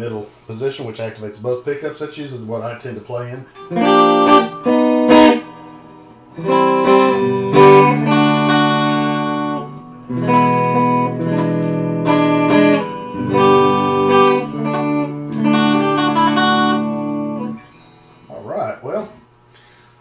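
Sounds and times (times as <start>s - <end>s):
electric guitar chords ringing: 3.5s - 18.4s.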